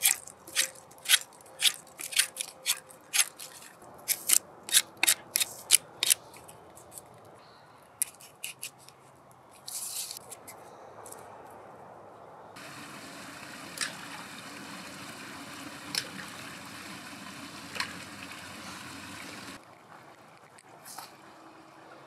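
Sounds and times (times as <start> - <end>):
creek water trickling over rocks: 0.0 - 4.2, 12.6 - 21.9
quiet outdoor background: 0.0 - 22.0.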